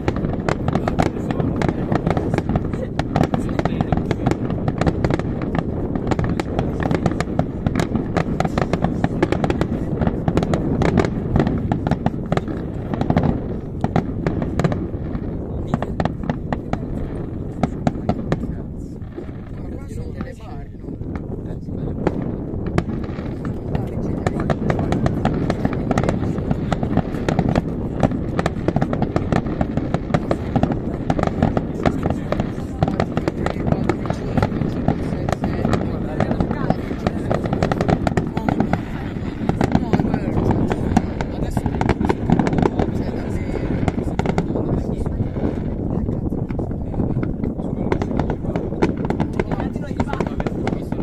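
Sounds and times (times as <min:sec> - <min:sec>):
fireworks bursting with bangs and crackles: 0:00.0 - 0:51.0
steady low rumble: 0:00.0 - 0:51.0.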